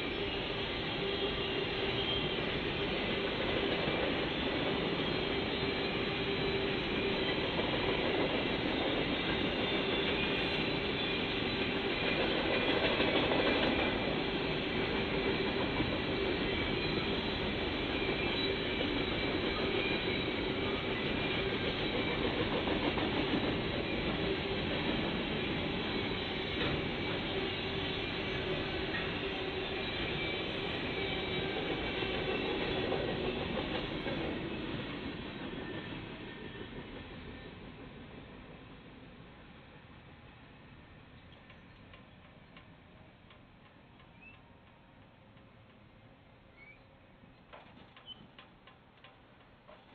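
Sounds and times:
train wheels rumbling on rails: 0.0s - 39.8s, 40.9s - 46.8s, 47.4s - 49.9s
wheel squeal: 46.5s - 46.9s, 48.0s - 48.3s.

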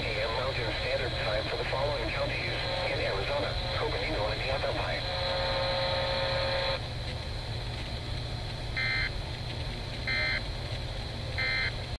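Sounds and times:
steady buzzing tone: 0.0s - 6.9s
low hum: 0.0s - 11.9s.

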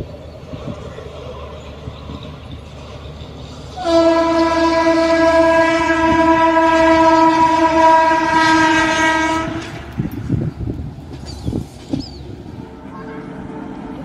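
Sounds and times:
train horn long blast: 3.7s - 10.2s, 12.5s - 14.0s.

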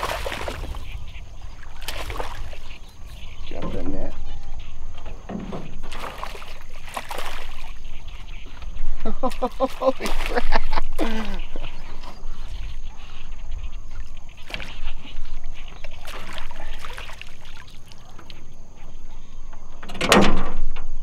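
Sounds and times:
fish thrashing and splashing: 0.0s - 3.3s, 5.7s - 11.8s, 14.4s - 18.4s.

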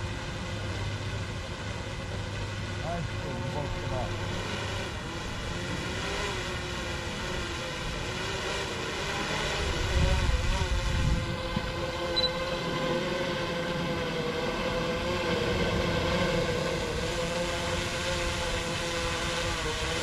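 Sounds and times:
drone propellers humming: 0.0s - 20.0s.

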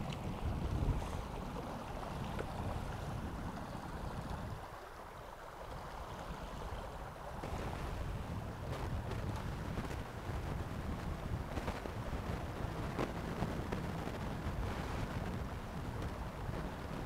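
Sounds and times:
river water rushing: 0.0s - 13.0s
wind buffeting microphone: 0.0s - 17.0s.

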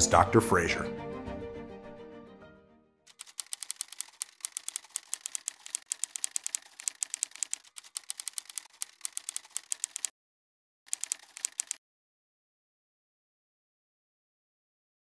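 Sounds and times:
typewriter key clicks: 3.1s - 10.1s, 10.9s - 11.8s.

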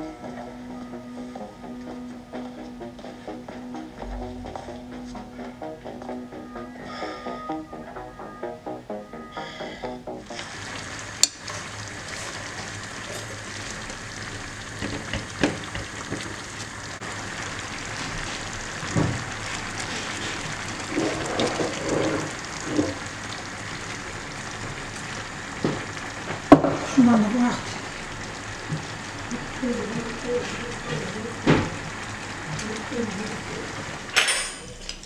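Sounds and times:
food sizzling in a pan: 9.4s - 35.0s.

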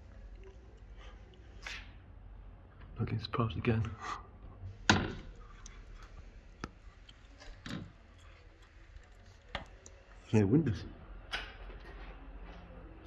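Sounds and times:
faint clicks and taps: 3.8s - 10.2s.

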